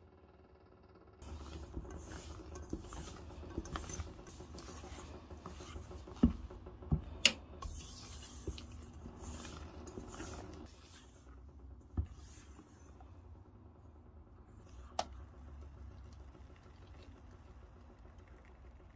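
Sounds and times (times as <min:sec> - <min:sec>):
spatula scraping batter in bowl: 0:01.2 - 0:06.6, 0:07.6 - 0:11.4.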